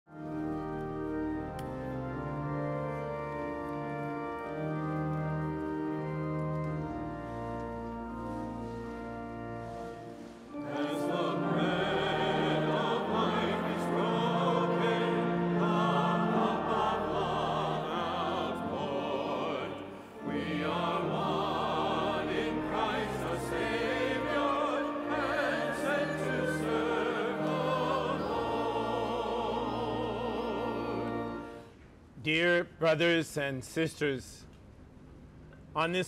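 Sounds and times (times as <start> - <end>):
organ: 0.1 - 31.8
choir singing: 8.4 - 31.7.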